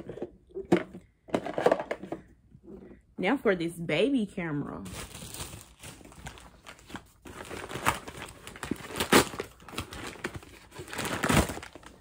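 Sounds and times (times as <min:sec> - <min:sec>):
packaging crinkling and rustling: 0:04.8 - 0:12.0.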